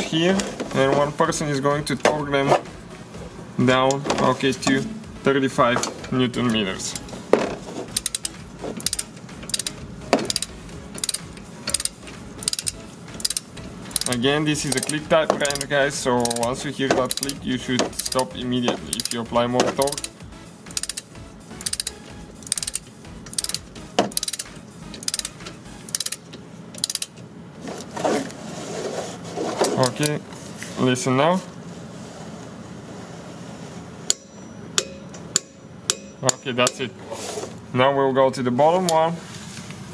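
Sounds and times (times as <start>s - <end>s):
torque wrench ratchet clicking: 7.9s - 27.2s.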